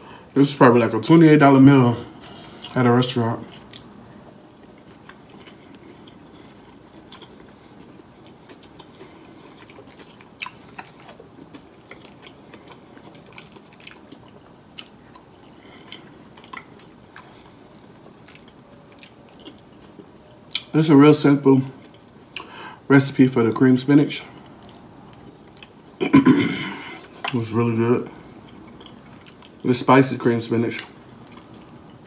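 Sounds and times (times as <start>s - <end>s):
close chewing: 3.4s - 20.7s, 28.2s - 29.7s, 30.8s - 32.0s.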